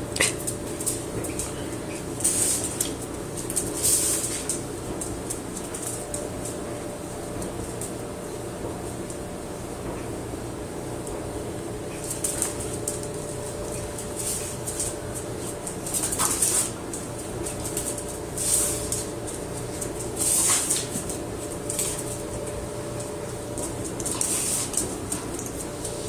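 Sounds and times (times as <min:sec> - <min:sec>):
steady low hum: 0:00.0 - 0:26.0
dog claws scrabbling on concrete: 0:12.0 - 0:22.2.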